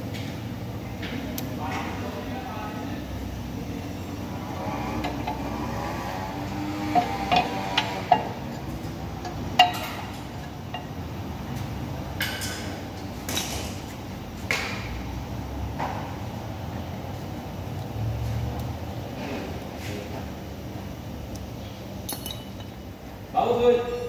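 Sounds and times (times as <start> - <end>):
metal brake parts clinking: 7.0 - 11.0, 22.0 - 22.9.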